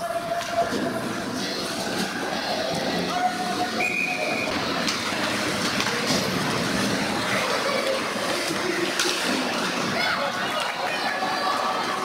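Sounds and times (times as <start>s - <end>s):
skates scraping on ice: 4.2s - 11.8s
hockey sticks and puck clacking: 4.4s - 12.0s.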